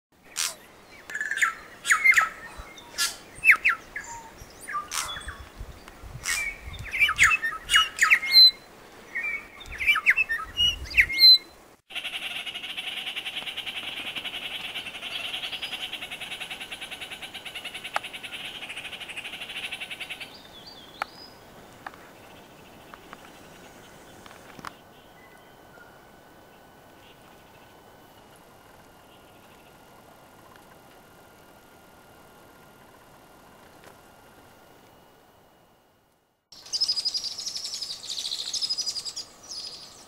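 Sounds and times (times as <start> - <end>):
birds squawking: 0.3 - 5.4, 6.2 - 8.5.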